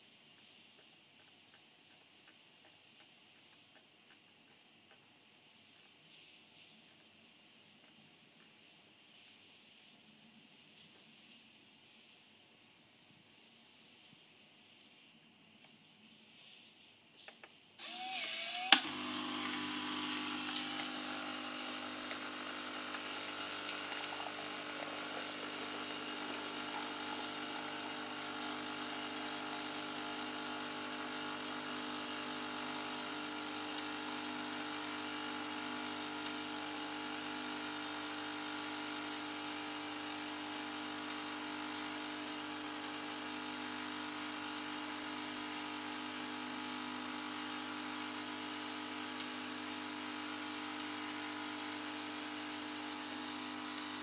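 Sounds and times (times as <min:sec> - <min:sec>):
coffee machine whine: 0:17.8 - 0:54.0
pump humming: 0:17.8 - 0:54.0
coffee machine click: 0:18.7 - 0:28.2.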